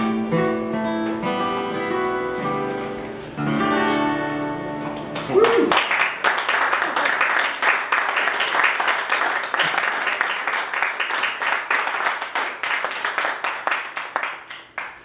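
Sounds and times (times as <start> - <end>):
audience applauding: 5.1 - 15.0.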